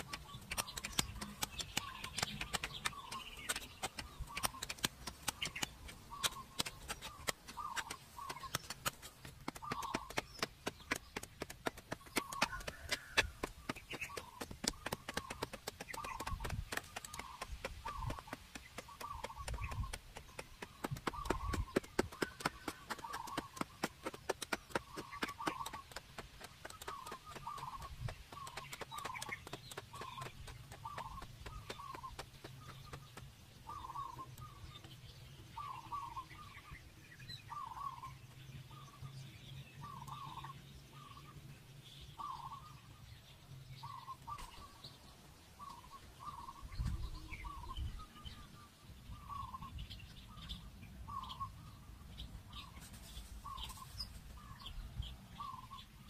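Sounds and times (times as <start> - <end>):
short bird calls: 0.0 - 10.5, 26.6 - 34.9
rapid tapping clicks: 0.0 - 33.3.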